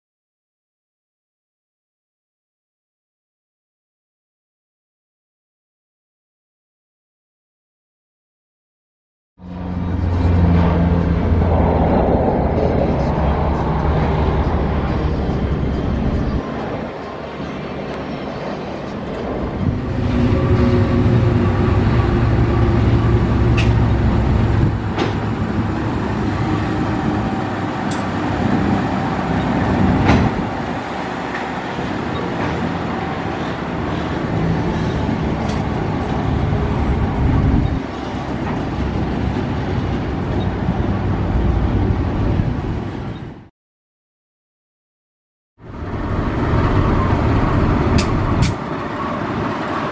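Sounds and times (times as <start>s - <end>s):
diesel locomotive engine drone: 9.4s - 43.5s, 45.6s - 49.9s.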